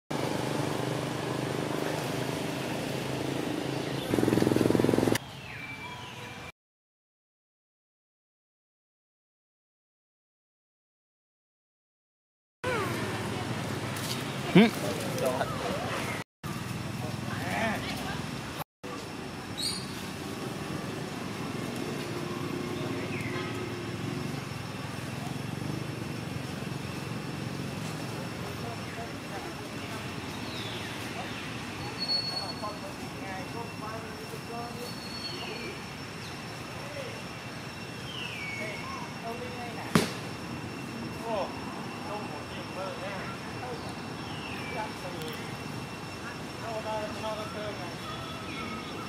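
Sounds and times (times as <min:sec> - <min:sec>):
engine rumble: 0:00.1 - 0:05.2
outdoor background noise: 0:00.1 - 0:06.5, 0:12.6 - 0:49.0
faint whistling calls: 0:19.6 - 0:20.0, 0:29.9 - 0:32.8, 0:34.7 - 0:40.1.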